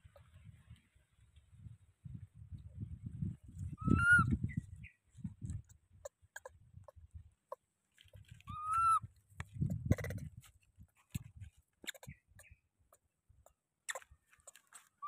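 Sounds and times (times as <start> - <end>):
monkey coo calls: 8.5 - 9.0.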